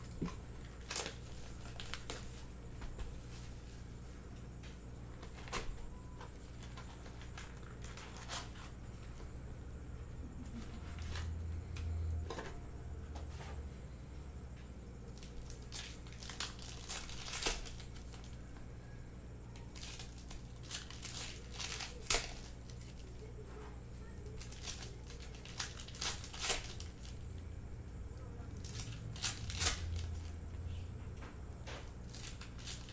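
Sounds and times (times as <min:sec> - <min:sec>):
plastic wrapping crinkling and tearing: 0:00.0 - 0:02.5, 0:05.2 - 0:08.8, 0:15.0 - 0:18.4, 0:19.6 - 0:23.4, 0:24.1 - 0:27.2, 0:28.5 - 0:30.4, 0:32.0 - 0:32.9
steady low hum: 0:00.0 - 0:32.9.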